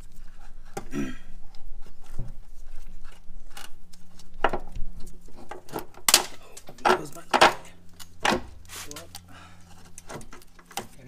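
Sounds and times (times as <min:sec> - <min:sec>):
faint steady hum: 0:00.0 - 0:11.0
metal hardware clicks and knocks: 0:05.4 - 0:09.3.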